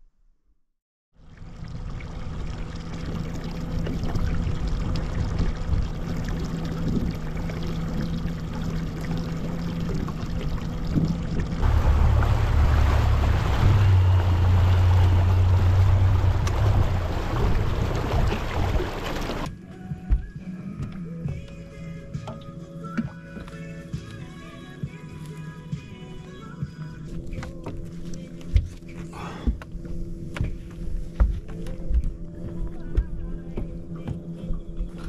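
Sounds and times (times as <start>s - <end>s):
water rushing past hull: 1.2s - 19.5s
boat motor running: 1.2s - 19.6s, 27.0s - 35.0s.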